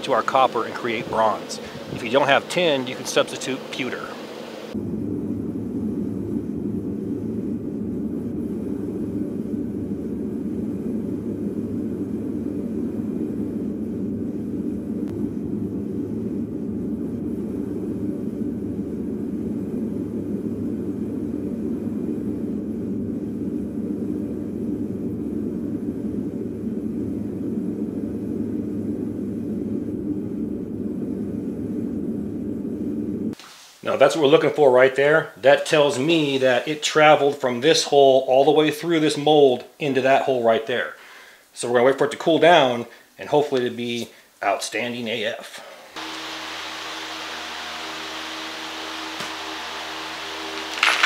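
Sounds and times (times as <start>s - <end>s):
furnace gas burner rushing: 0.0s - 5.0s, 45.5s - 51.0s.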